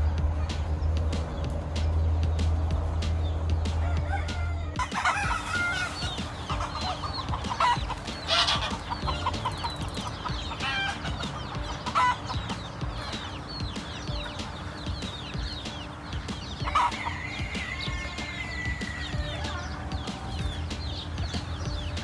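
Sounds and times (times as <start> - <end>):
chickens clucking: 0.0 - 22.0
rooster crowing: 3.8 - 9.4, 16.6 - 20.6.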